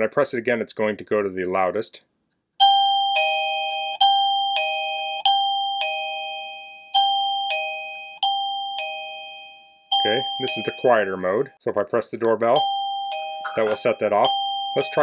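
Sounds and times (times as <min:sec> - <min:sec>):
doorbell ding-dong chime: 0:02.6 - 0:11.1, 0:12.6 - 0:15.0.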